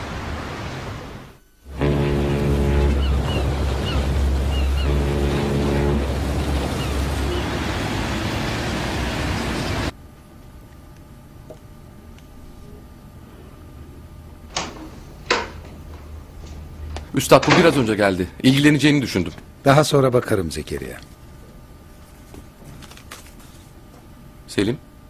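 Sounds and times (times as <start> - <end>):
ferry horn blasts: 0.0 - 9.9
low engine rumble: 0.0 - 9.9
water washing: 0.0 - 9.9
gulls calling: 1.7 - 9.9.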